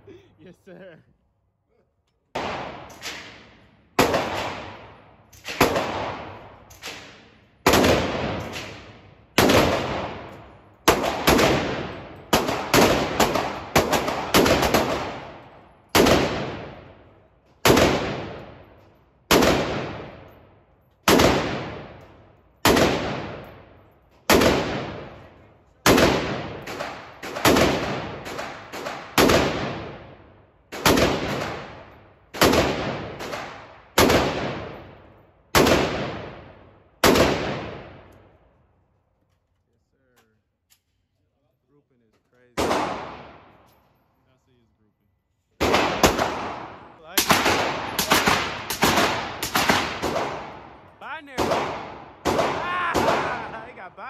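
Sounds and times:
gunshots with echo: 2.3 - 17.0, 24.3 - 38.1, 42.6 - 43.6, 45.6 - 54.0.

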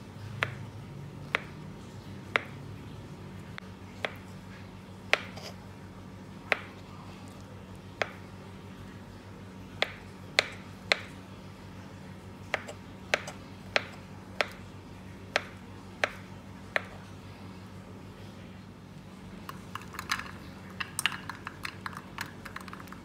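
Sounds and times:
low steady hum: 0.0 - 23.0
knife chopping on cutting board: 5.1 - 5.6, 12.5 - 14.6.

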